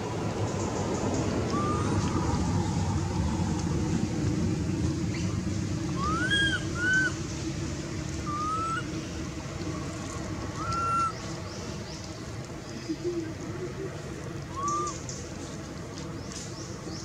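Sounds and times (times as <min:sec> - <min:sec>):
low background rumble: 0:00.0 - 0:17.0
baby monkey coo calls: 0:01.5 - 0:02.0, 0:06.0 - 0:07.2, 0:08.3 - 0:08.9, 0:10.5 - 0:11.2, 0:12.9 - 0:15.0.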